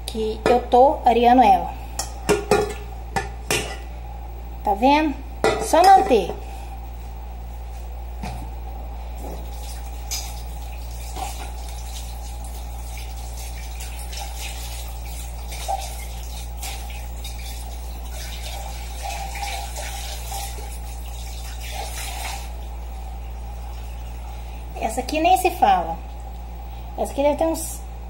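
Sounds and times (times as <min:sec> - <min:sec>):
water running from tap: 0:09.3 - 0:24.8.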